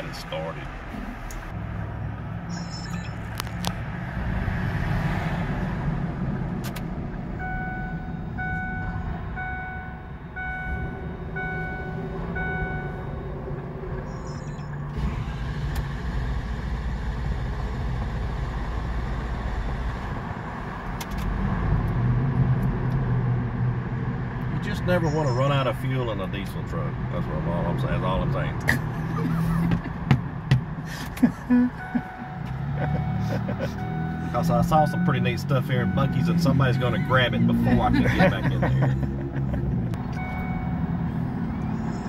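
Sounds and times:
motor vehicles rumbling: 0:00.0 - 0:42.0
electronic beeps: 0:02.4 - 0:03.7, 0:07.4 - 0:14.9, 0:31.8 - 0:37.4, 0:40.0 - 0:42.0.

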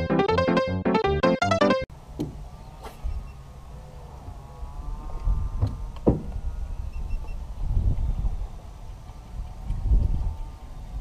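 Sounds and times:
wind rumble on microphone: 0:03.0 - 0:11.0.

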